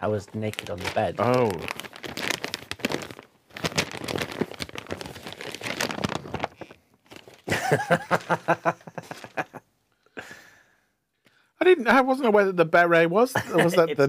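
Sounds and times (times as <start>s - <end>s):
wrapping paper crinkling: 0.2s - 9.6s
person laughing: 7.5s - 9.6s, 13.4s - 14.0s.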